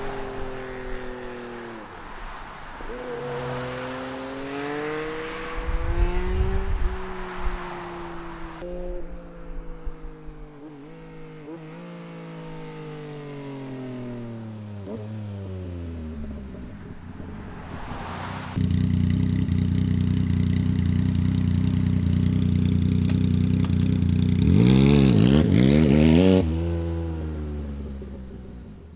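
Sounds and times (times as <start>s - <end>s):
motorcycle riding away: 0.0s - 1.9s, 2.8s - 28.9s
motorcycle throttle blips: 18.5s - 25.6s
motorcycle engine idling: 18.6s - 24.6s.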